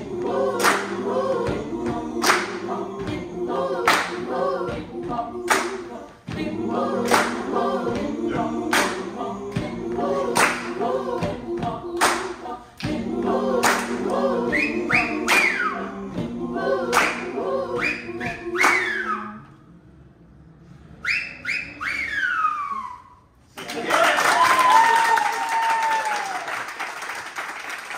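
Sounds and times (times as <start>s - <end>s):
a cappella group singing: 0.0s - 19.8s
hand claps on a beat: 0.6s - 15.6s, 16.9s - 17.3s.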